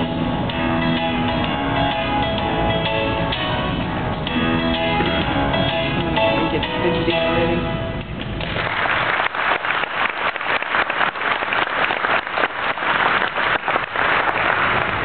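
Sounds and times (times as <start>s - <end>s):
audience applauding: 8.4s - 15.0s.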